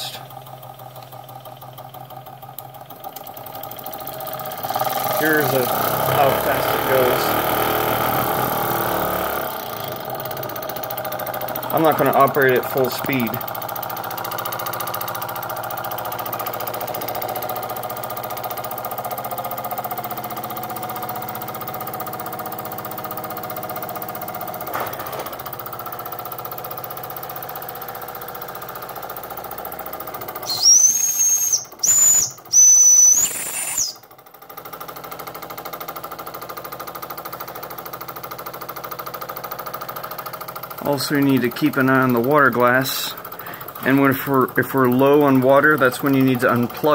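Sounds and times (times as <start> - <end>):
steam engine chuffing: 0.0 - 46.9
shrill steam whistle blasts: 30.4 - 34.0.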